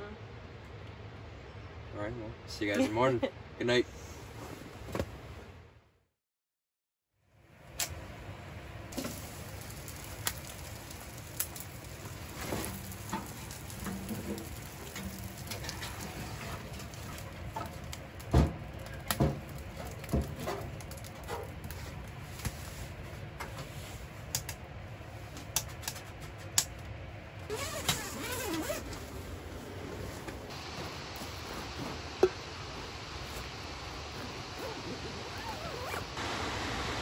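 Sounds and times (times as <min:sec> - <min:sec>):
wood fire crackling and popping: 0:08.9 - 0:24.7, 0:25.3 - 0:26.9, 0:27.5 - 0:36.0
wood knocking in firebox: 0:12.5 - 0:21.6
waterfall rushing: 0:30.5 - 0:37.0.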